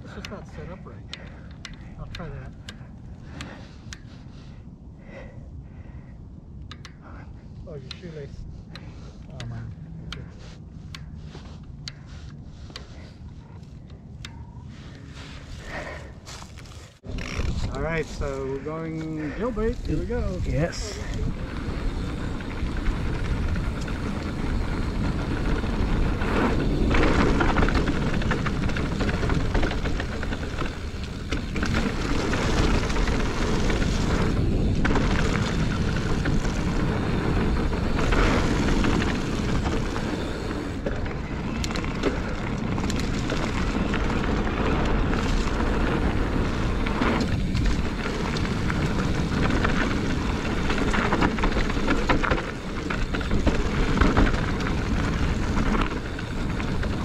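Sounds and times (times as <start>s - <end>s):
bike rolling rumble: 0.0s - 57.0s
wind rushing over microphone: 17.0s - 57.0s.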